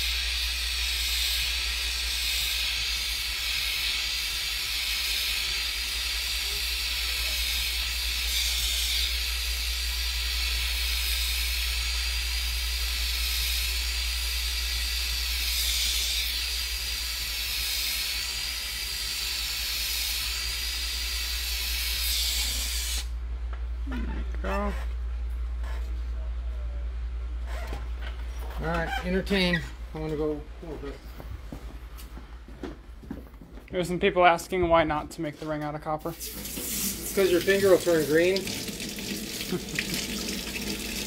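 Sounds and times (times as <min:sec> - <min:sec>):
torch flame hissing: 0:00.0 - 0:23.2, 0:36.1 - 0:41.0.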